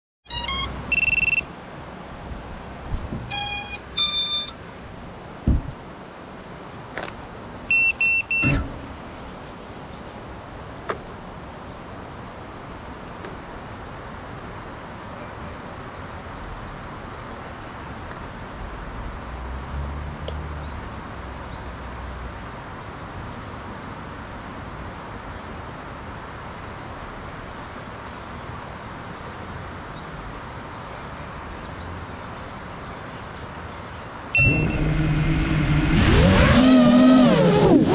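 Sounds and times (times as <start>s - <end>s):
short electronic beeps: 0.3s - 1.5s, 3.3s - 4.6s, 7.7s - 8.7s, 34.4s - 35.0s
low thud: 2.9s - 3.3s, 5.4s - 5.8s
faint high chirps: 34.4s - 34.8s.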